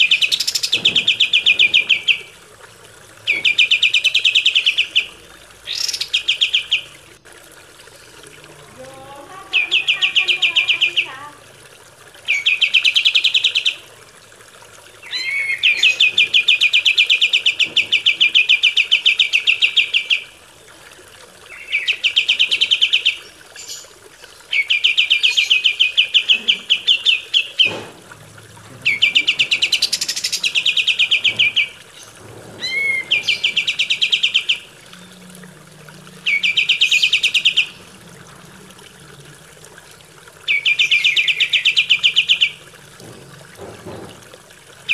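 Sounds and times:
songbird trilling: 9.5s - 11.2s, 28.8s - 35.2s, 36.2s - 37.8s, 40.5s - 42.6s.

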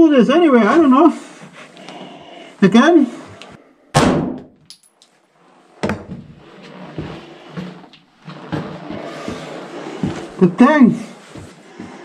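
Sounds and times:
sharp knock: 4.0s - 4.5s
footsteps on brick paving: 6.1s - 12.0s.

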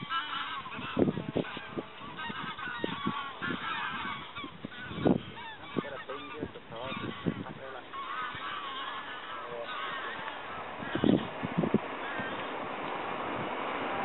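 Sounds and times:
geese honking: 0.0s - 12.9s.

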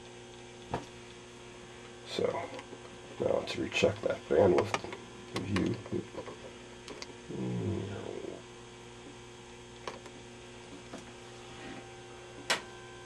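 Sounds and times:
electrical mains hum: 0.0s - 13.0s
short low murmur: 7.3s - 8.4s.

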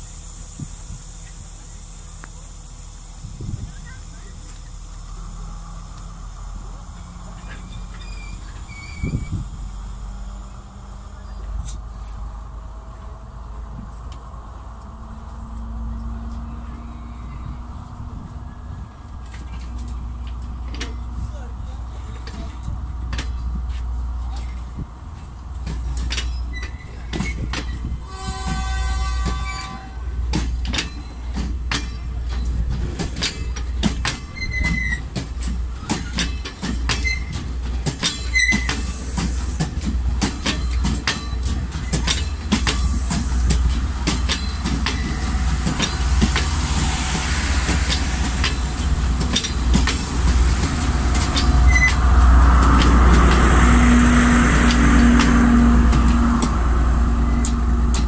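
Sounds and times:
diesel engine drone: 0.0s - 26.0s, 41.4s - 58.0s
wheel squeals: 7.4s - 12.3s, 26.1s - 27.9s, 34.1s - 35.2s, 35.8s - 39.0s, 51.2s - 52.1s
train wheels clacking over rail joints: 19.0s - 58.0s.

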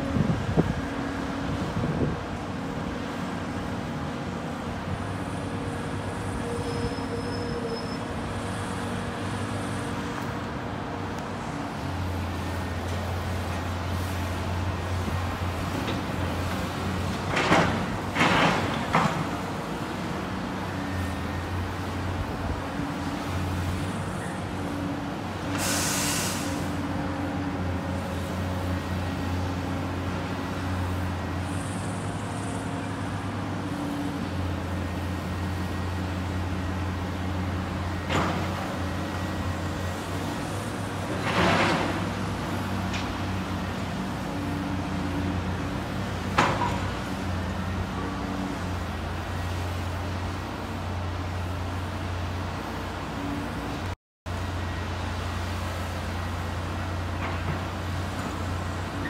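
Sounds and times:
diesel excavator engines humming: 0.0s - 59.0s
short hiss: 25.6s - 26.7s.

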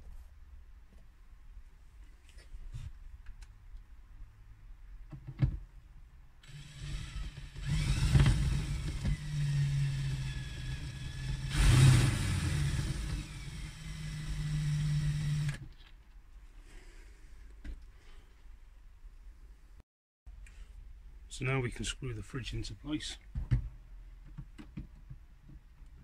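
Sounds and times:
cordless drill driving screws: 6.4s - 15.6s.

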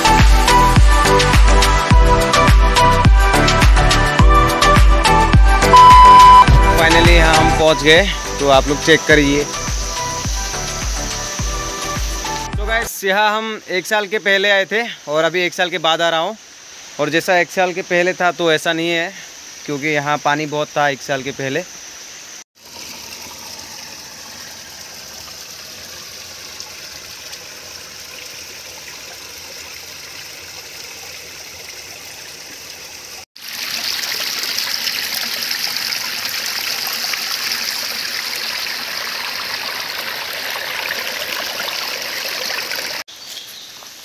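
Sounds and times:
waterfall splashing over rocks: 6.4s - 12.5s, 22.6s - 43.1s.

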